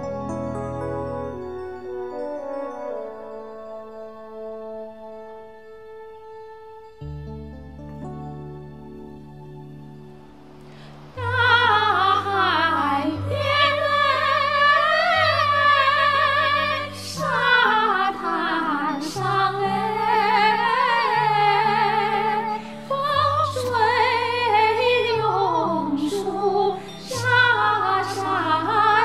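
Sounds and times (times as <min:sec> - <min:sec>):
two women singing a duet: 0:11.2 - 0:29.0.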